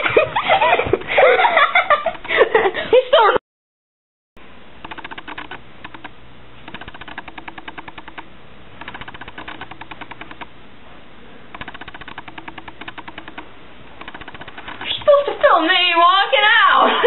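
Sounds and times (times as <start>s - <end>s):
rapid clicking: 1.9s - 2.5s, 4.8s - 10.6s, 11.5s - 15.5s.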